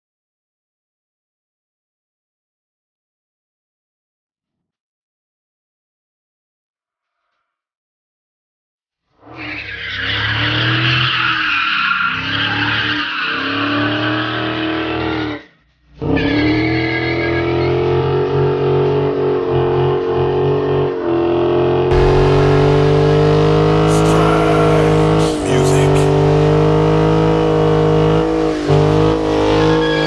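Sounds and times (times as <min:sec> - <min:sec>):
car engine revving high: 0:21.9 - 0:30.0.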